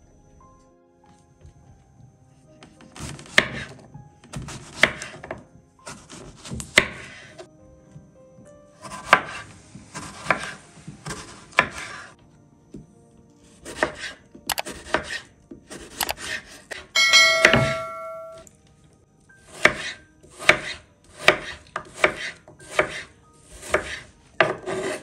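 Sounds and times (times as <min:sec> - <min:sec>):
short ringing chime: 0:17.0 - 0:18.4.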